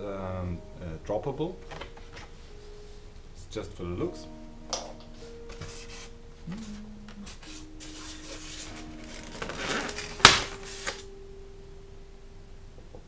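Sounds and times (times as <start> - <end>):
plastic wrapping rustling: 5.1 - 11.1
hands rummaging in styrofoam box: 7.3 - 11.0.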